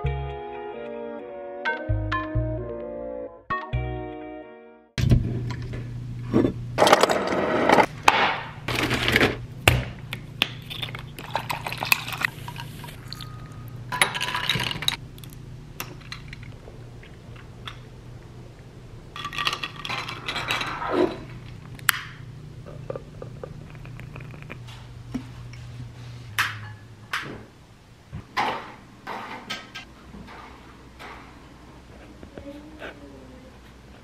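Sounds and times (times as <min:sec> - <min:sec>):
low steady hum: 0:07.8 - 0:34.0.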